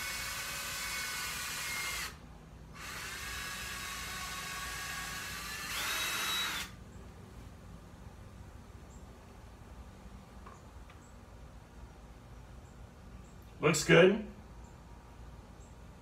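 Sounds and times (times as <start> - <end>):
cordless drill boring wood: 0.0 - 2.2, 2.8 - 6.8.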